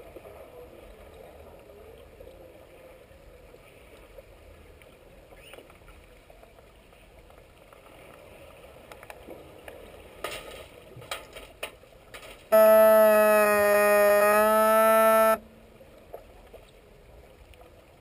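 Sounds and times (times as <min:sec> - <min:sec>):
buzzing underwater horn: 0:12.5 - 0:15.7.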